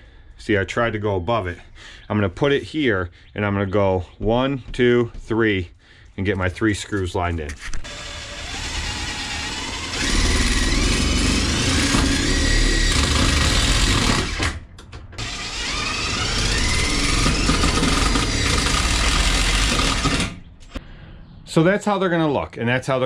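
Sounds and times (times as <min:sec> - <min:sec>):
power drill driving screws: 0:07.8 - 0:14.6, 0:15.2 - 0:20.4.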